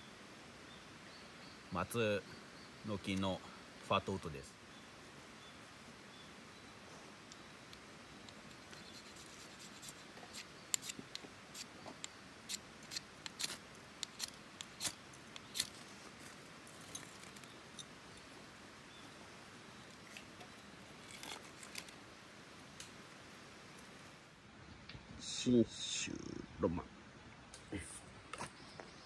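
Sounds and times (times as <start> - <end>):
faint fire crackles: 2.2 - 26.4
ferro rod scraping: 12.5 - 15.8.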